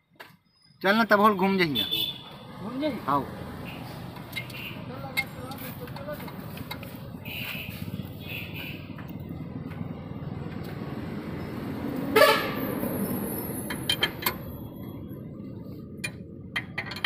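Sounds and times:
vehicle horn toot: 1.7 - 2.5, 3.6 - 4.9, 7.2 - 8.9, 12.1 - 12.7.

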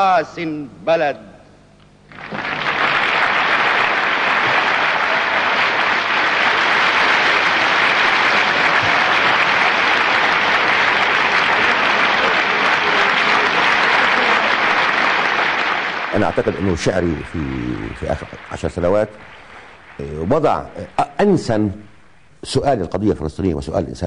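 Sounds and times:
large audience applauding: 2.1 - 20.8.

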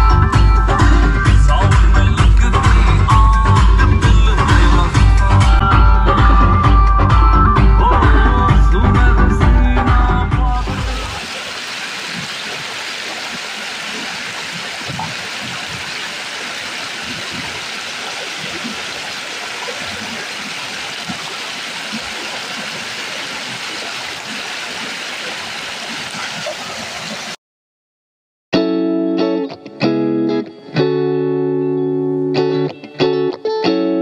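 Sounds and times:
river rushing: 10.5 - 27.4.

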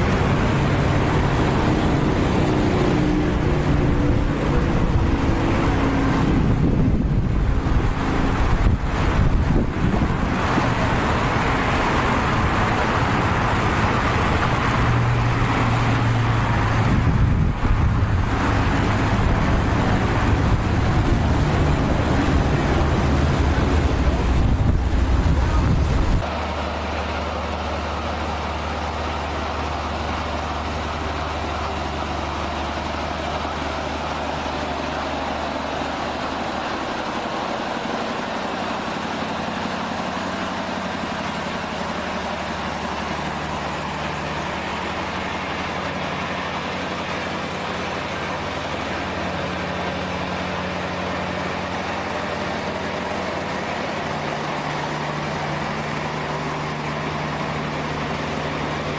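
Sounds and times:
rough loud engine rumble: 0.0 - 58.9
steady engine hum: 0.0 - 58.9.

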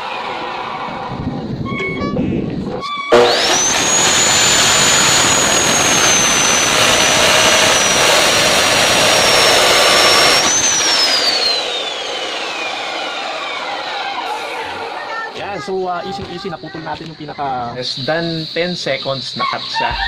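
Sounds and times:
cut-off saw motor whine: 3.0 - 20.0
abrasive wheel grinding steel: 3.1 - 15.1.

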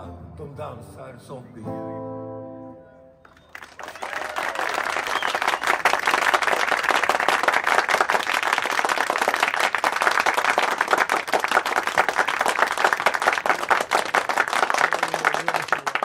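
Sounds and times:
audience applauding: 3.3 - 16.0.

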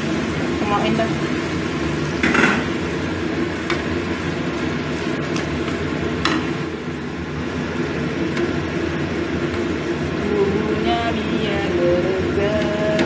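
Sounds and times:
food simmering in a wok: 0.0 - 13.0
low kitchen hum: 0.0 - 13.0.

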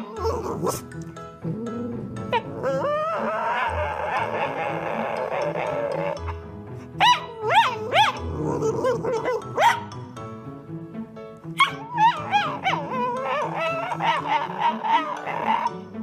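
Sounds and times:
dog whining yowls: 0.0 - 0.9, 1.6 - 6.4, 7.0 - 9.9, 11.6 - 15.8
background music: 0.0 - 16.0.

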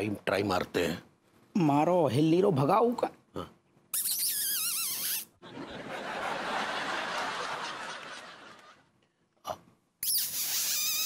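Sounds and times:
crowd laughing: 5.4 - 8.9.

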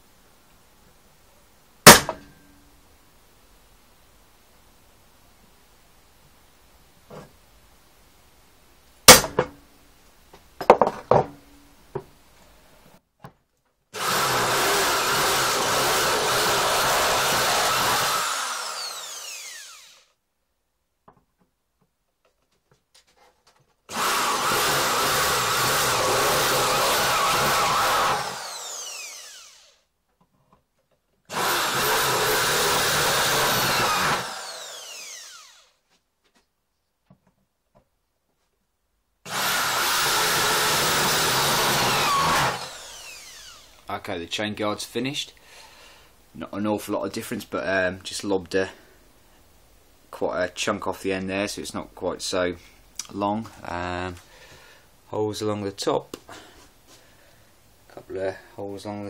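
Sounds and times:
drill motor spinning down whine: 14.0 - 20.1, 23.9 - 29.8, 31.3 - 35.7, 39.3 - 43.8
electric drill drilling metal: 14.0 - 20.1, 23.9 - 29.8, 31.3 - 35.8, 39.3 - 43.8.

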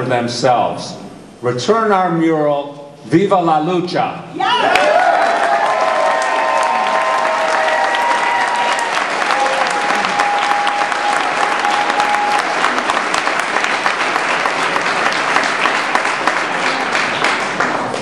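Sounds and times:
crowd applauding: 4.6 - 18.0.

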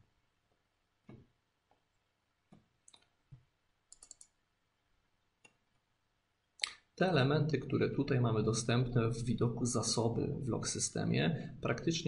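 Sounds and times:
computer mouse clicks: 2.5 - 4.4.

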